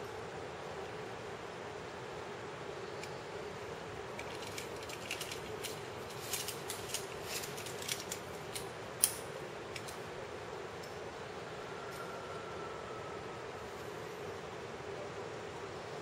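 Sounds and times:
climbing gear clinking: 4.1s - 10.0s.

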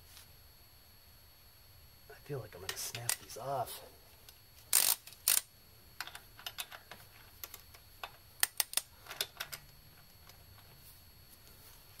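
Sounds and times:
torque wrench ratchet clicking: 4.7s - 5.5s, 8.4s - 8.9s.

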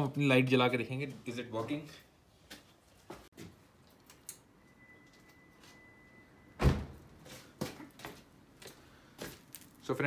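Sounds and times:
faint steady high tone: 4.5s - 6.6s.

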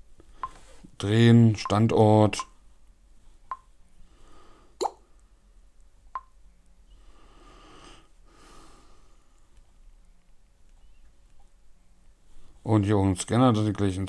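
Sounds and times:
fingertip tapping touchscreen: 0.4s - 0.6s.

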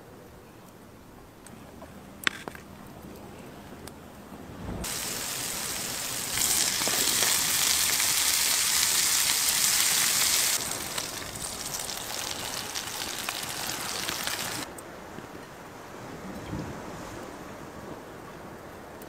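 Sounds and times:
fine crackles: 4.8s - 14.7s
oil sizzling in pan: 4.8s - 14.7s.

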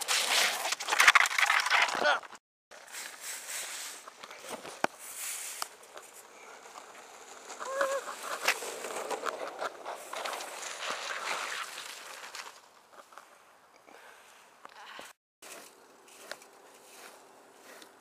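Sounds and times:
skateboard wheels rolling on asphalt: 3.1s - 13.7s
short wavering cry: 7.6s - 8.1s.

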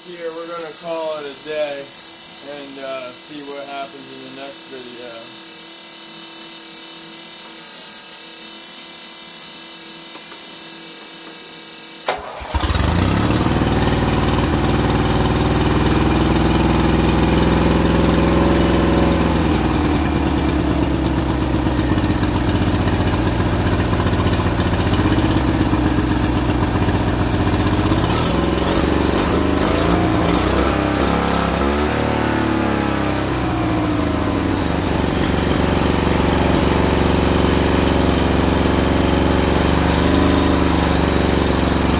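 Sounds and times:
mower engine revving: 12.1s - 41.9s.

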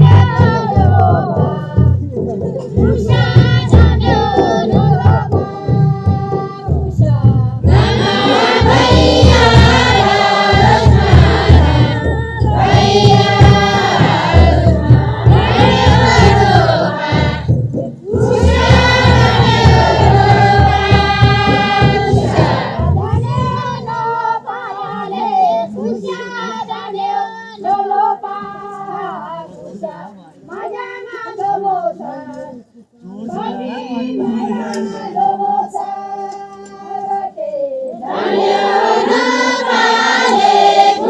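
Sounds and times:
steady low beat: 0.0s - 24.1s
voices singing: 0.0s - 41.0s.

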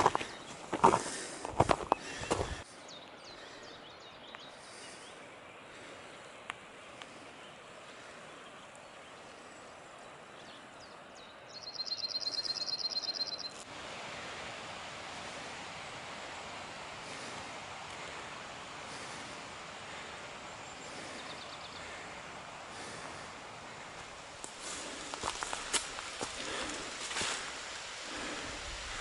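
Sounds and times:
songbirds chirping: 0.0s - 14.2s, 15.0s - 29.0s
outdoor air hiss: 0.0s - 29.0s
bird trill: 11.6s - 13.6s.

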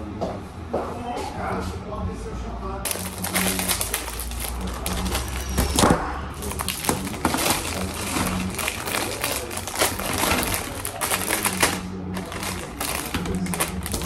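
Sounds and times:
steady low hum: 1.3s - 14.0s
plastic wrapping crinkling: 2.9s - 14.0s.

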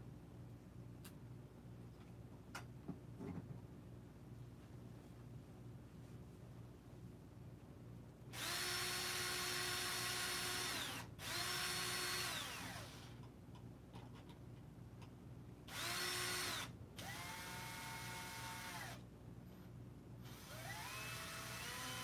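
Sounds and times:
cordless drill whining: 8.4s - 13.1s, 15.7s - 19.0s, 20.3s - 22.0s.

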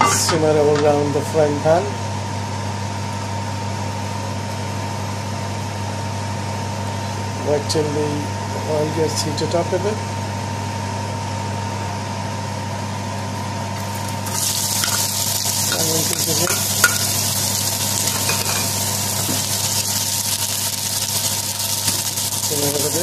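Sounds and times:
steady hum: 0.0s - 23.0s
onions sizzling in oil: 13.8s - 23.0s.

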